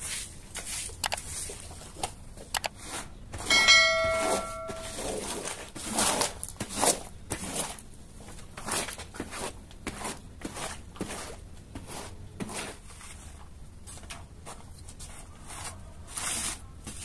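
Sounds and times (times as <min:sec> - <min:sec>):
broom and squeegee swishing water: 0:00.0 - 0:01.7, 0:08.6 - 0:17.0
short clicks: 0:01.0 - 0:01.2
bell ding: 0:03.5 - 0:05.2.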